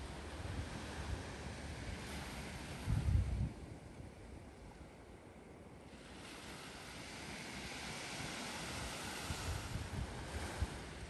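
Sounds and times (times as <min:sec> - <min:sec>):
wave washing onto beach: 0:00.0 - 0:03.9, 0:05.8 - 0:11.0
wind buffeting microphone: 0:00.0 - 0:04.3, 0:06.5 - 0:11.0.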